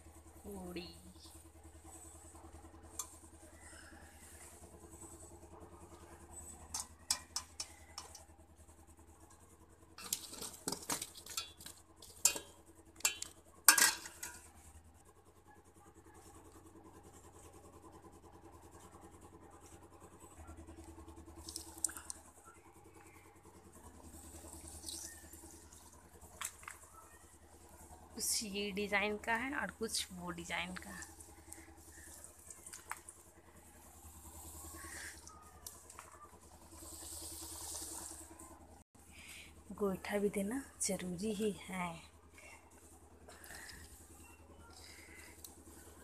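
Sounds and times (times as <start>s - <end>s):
metal utensils clinking: 6.7s - 8.2s, 10.0s - 14.5s.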